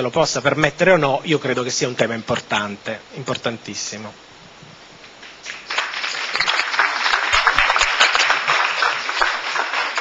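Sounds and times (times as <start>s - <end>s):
audience applauding: 5.2s - 10.0s.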